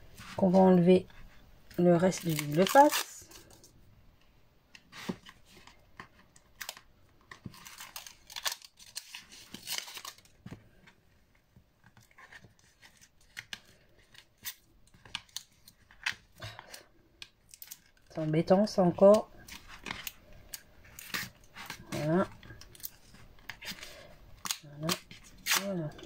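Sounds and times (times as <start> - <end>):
paper crinkling: 2.0 - 3.7, 4.9 - 11.0
tape liner peeling: 24.4 - 26.0.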